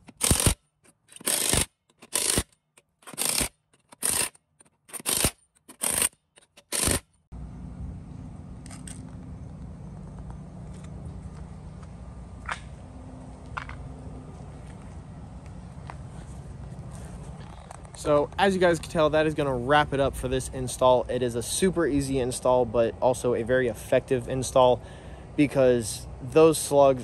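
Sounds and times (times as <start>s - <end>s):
cordless impact wrench bursts: 0.0s - 7.1s.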